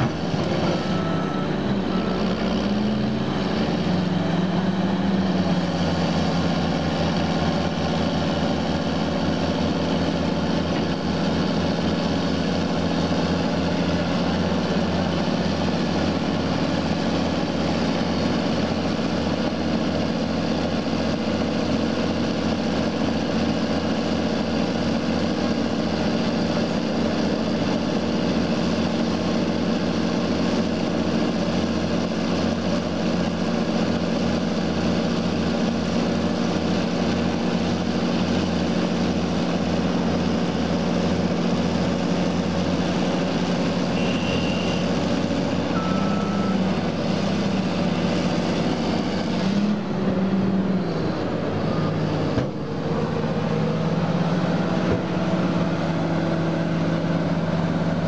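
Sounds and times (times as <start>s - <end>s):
heavy diesel engines under load: 0.0s - 58.0s
short high beeps: 0.6s - 2.4s, 44.0s - 44.8s, 45.7s - 46.6s.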